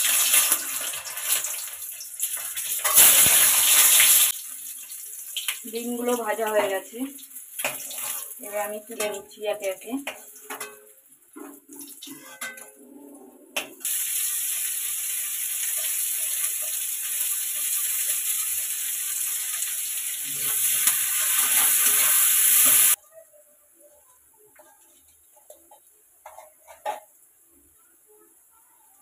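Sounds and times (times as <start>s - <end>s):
onions sizzling in hot oil: 0.0s - 12.8s, 13.7s - 23.0s, 24.6s - 27.7s.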